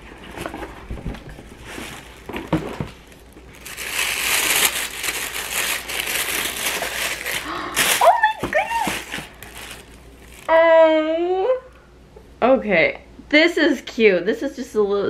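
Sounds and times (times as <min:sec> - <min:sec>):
plastic packaging crinkling: 0:00.0 - 0:10.6.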